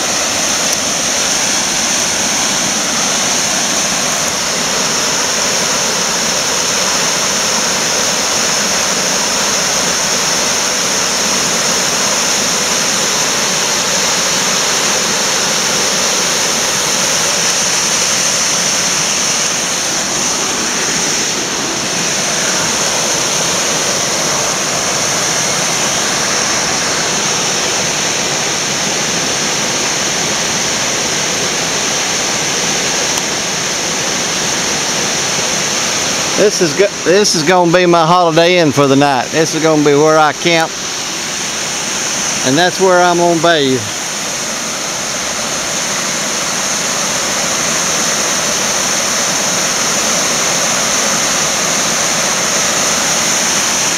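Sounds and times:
waterfall rushing: 0.0s - 53.9s.

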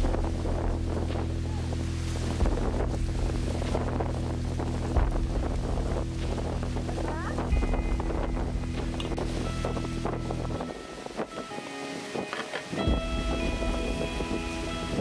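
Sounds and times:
low mechanical hum: 0.0s - 10.7s
low bumps: 0.0s - 11.5s, 12.5s - 15.0s
wind buffeting microphone: 0.0s - 15.0s.

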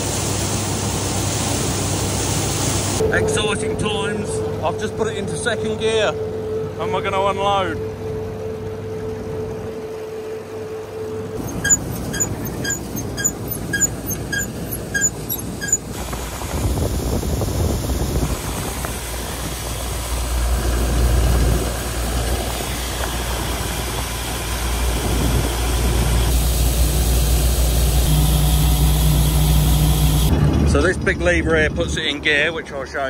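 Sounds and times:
combine harvester running: 0.0s - 33.0s.

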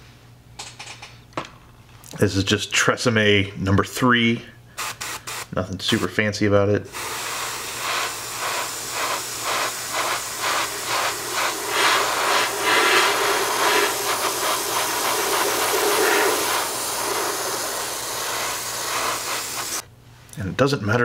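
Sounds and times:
airbrush air hissing: 4.8s - 6.2s, 6.9s - 19.9s.

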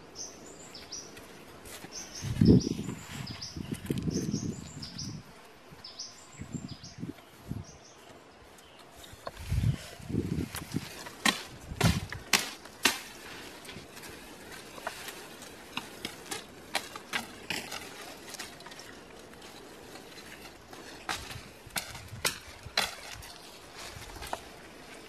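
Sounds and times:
footsteps in dry grass: 0.0s - 25.0s
knife cutting branches: 10.3s - 24.6s
twigs snapping: 10.4s - 25.0s.

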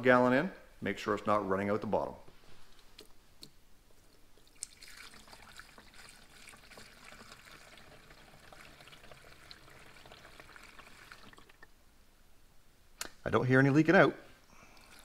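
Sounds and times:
fluid trickling into reservoir: 4.4s - 11.8s, 14.5s - 15.0s.

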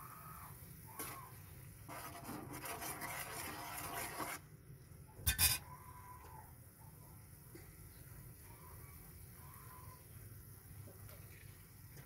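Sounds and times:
metal ladle scraping a wok: 1.9s - 4.4s, 5.3s - 5.6s.

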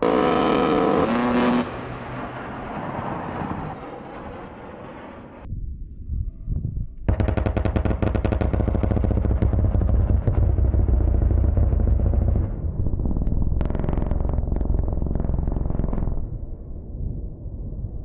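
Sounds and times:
gatling cannon firing: 7.1s - 12.6s
rounds crackling on ground: 7.1s - 16.4s.

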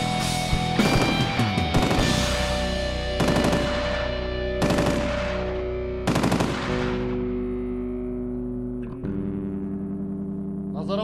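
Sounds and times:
background music: 0.0s - 11.0s
machine gun bursts: 3.2s - 7.2s.

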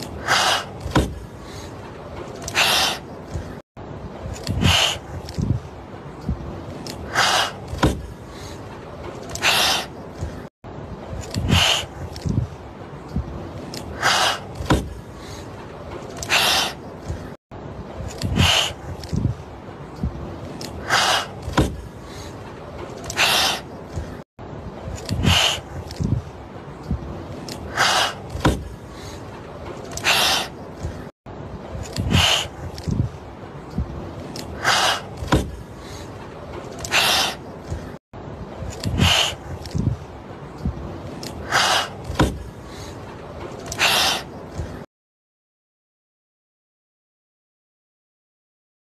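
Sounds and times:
kittens hissing: 9.4s - 9.9s, 16.2s - 16.8s, 18.3s - 18.8s, 23.1s - 23.6s, 25.2s - 25.7s, 27.7s - 28.2s, 34.6s - 35.1s.

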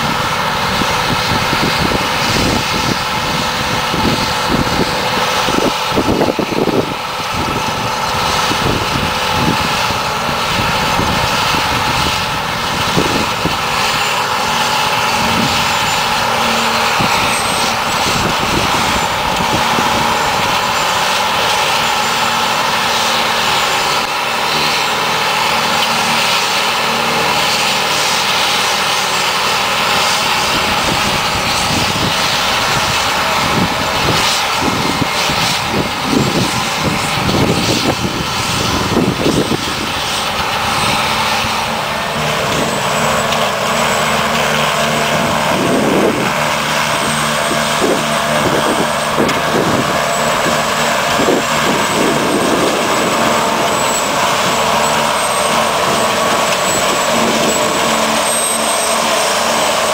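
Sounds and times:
harvester engine drone: 0.0s - 59.9s
high steady whine: 0.0s - 59.9s.

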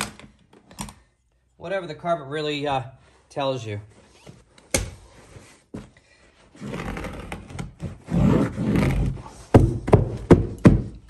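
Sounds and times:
carpet scraping against stair: 3.9s - 10.3s.

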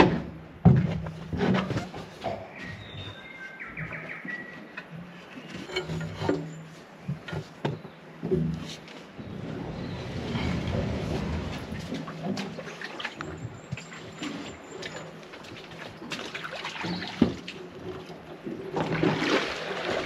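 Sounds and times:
rope and gear knocking on metal boat: 0.0s - 3.0s, 4.8s - 9.4s
bird singing whistled notes: 2.6s - 4.6s.

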